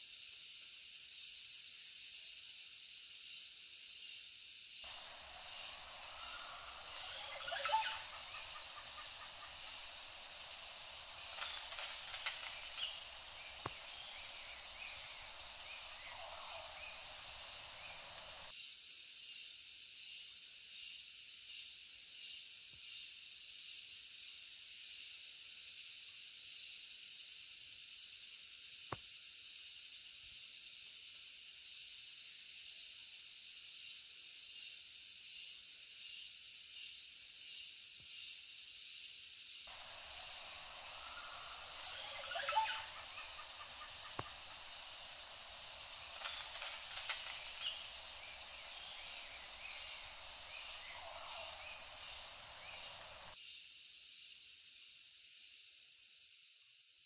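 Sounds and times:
faint pulsing: 4.9s - 18.5s
stream running: 4.9s - 18.5s, 39.7s - 53.4s.

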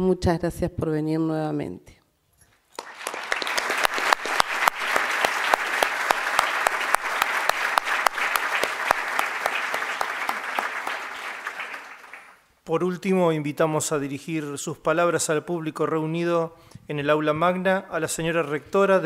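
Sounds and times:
audience applause: 2.7s - 12.4s.

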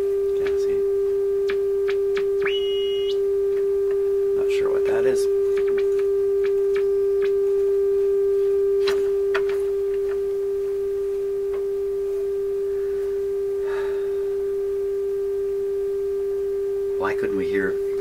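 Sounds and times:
radio test tone: 0.0s - 9.4s.

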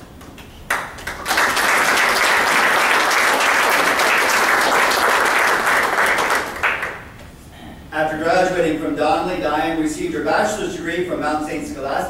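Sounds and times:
audience applauding: 0.7s - 7.1s.

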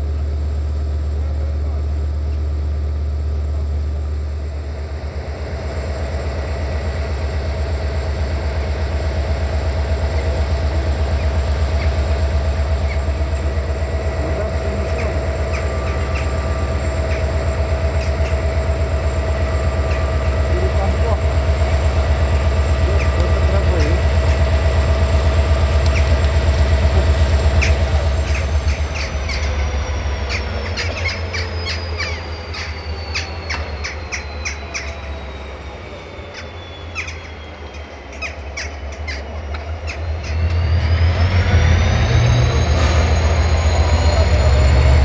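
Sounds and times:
diesel locomotive engine throb: 0.0s - 45.0s
high engine whine: 0.0s - 45.0s
short squeals and clicks: 30.2s - 40.7s.

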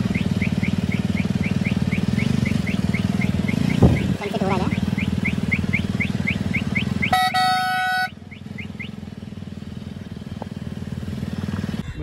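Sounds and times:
motorcycle engine running: 0.0s - 12.0s
vehicle horn: 6.8s - 8.2s.

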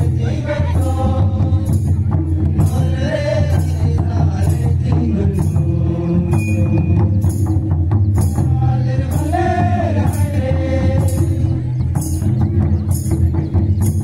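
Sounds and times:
percussion with jingling beat: 0.0s - 14.0s.

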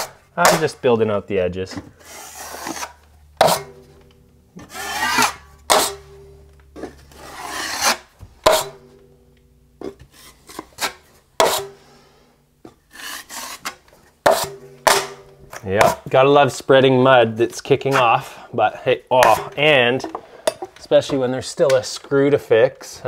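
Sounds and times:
taping knife scraping compound: 0.0s - 0.8s, 1.9s - 3.7s, 4.6s - 6.0s, 6.9s - 8.8s, 10.0s - 11.8s, 12.8s - 14.6s.

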